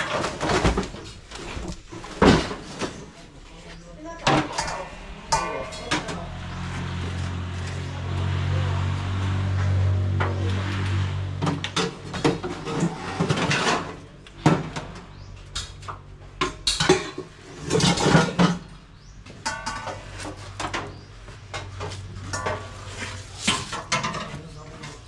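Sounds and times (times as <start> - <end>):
knocks and metallic clinks: 4.2 - 7.0
vehicle engine running: 4.5 - 12.5.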